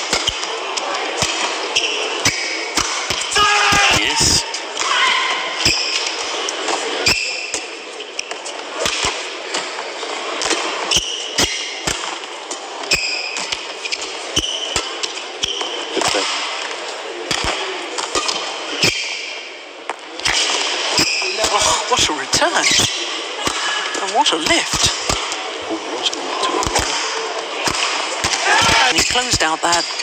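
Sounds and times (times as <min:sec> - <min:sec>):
arena crowd noise: 0:00.0 - 0:30.0
shoes squeaking on court: 0:22.6 - 0:23.2
rackets striking shuttlecock: 0:24.7 - 0:25.4, 0:26.6 - 0:28.5.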